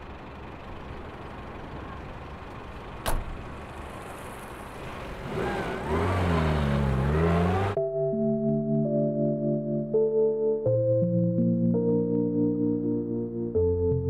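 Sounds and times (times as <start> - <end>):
car engine running: 0.0 - 7.8
car door shutting: 3.0 - 3.4
music: 7.8 - 14.0.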